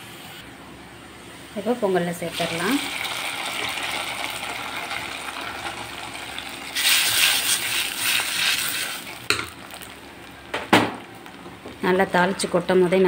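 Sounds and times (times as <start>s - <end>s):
hot oil sizzling: 2.2s - 12.2s.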